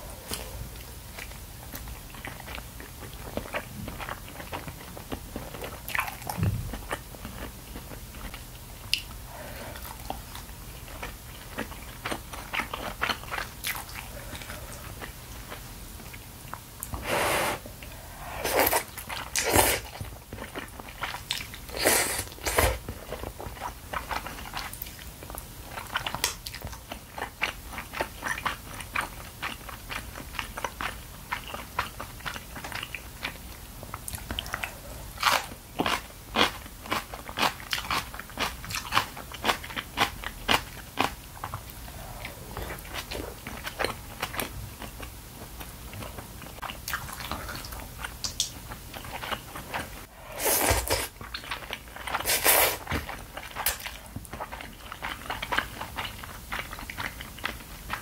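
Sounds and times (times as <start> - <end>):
noodle slurps: 50.1 - 51.2, 52.1 - 53.0.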